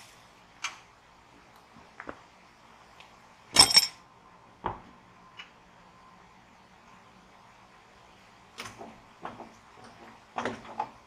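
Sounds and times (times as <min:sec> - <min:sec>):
metal clanks and clinks: 0:03.6 - 0:04.0.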